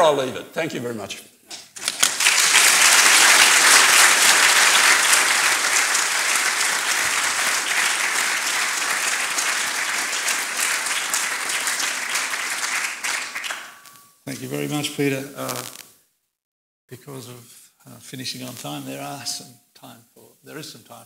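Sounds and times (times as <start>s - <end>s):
audience applauding: 1.8s - 14.0s.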